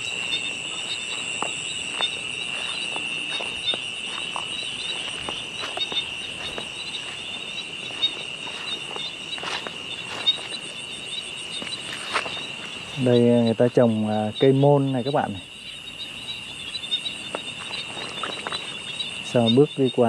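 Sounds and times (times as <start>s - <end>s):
footsteps through dry grass: 0.0s - 13.4s, 17.3s - 18.9s
insect pulsing call: 0.0s - 20.0s
insects trilling: 0.0s - 20.0s.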